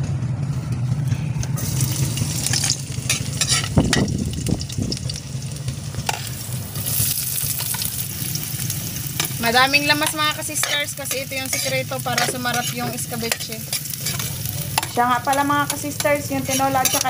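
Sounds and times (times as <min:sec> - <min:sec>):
steady low hum: 0:00.0 - 0:17.0
spices sizzling in oil: 0:01.6 - 0:17.0
utensil knocking and scraping pan: 0:10.0 - 0:17.0.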